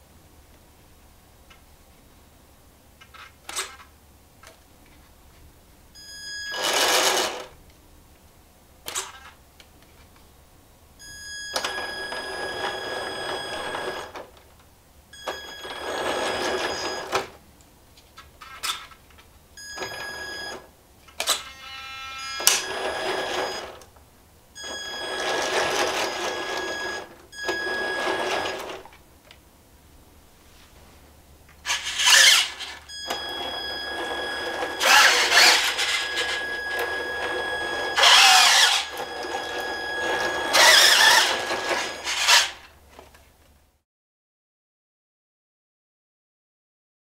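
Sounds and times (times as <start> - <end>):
toy truck motor whirring: 6.5 - 7.5, 15.4 - 17.3, 21.2 - 23.8, 24.6 - 28.9, 31.6 - 42.7.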